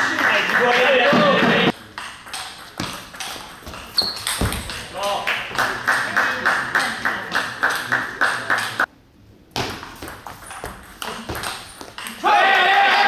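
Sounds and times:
table tennis rally strikes: 0:00.1 - 0:08.9, 0:09.5 - 0:13.0
table tennis ball bouncing: 0:01.1 - 0:06.1, 0:09.6 - 0:12.3.

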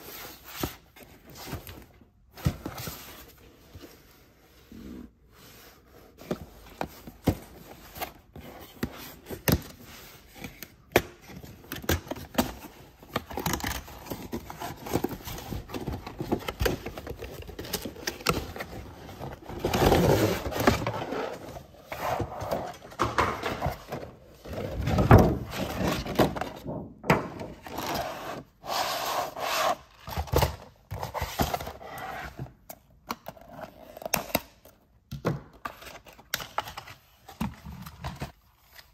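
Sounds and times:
cardboard rubbing and scraping: 0:18.6 - 0:22.8, 0:27.5 - 0:30.1.

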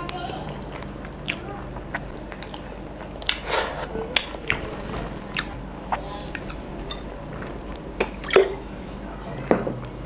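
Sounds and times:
chewing with wet mouth smacks: 0:00.0 - 0:04.6.

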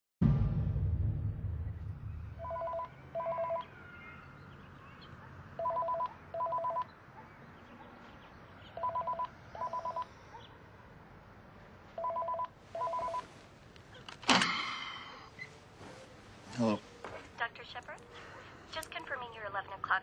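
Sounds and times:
cordless phone ringing: 0:02.4 - 0:03.7, 0:05.6 - 0:06.9, 0:08.8 - 0:10.1, 0:12.0 - 0:13.3.

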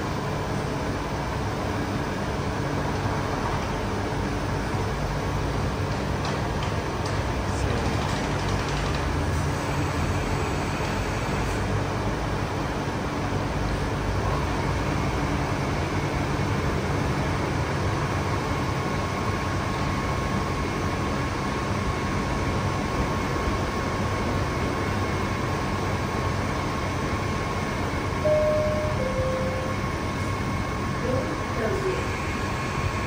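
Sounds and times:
machinery rumble and hum: 0:00.0 - 0:33.0
faint high whine: 0:28.2 - 0:30.4.

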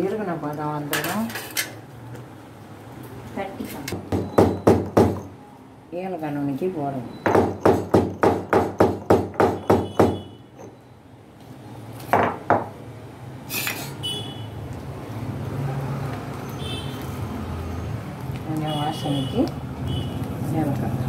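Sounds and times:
pestle thudding in stone mortar: 0:04.0 - 0:05.3, 0:07.2 - 0:10.2.

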